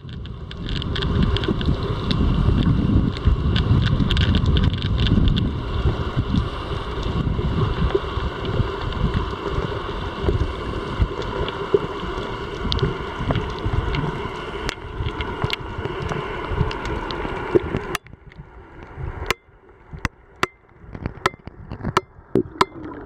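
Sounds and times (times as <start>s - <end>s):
faint clicks: 0.0s - 5.5s
muffled underwater water rushing: 0.0s - 23.0s.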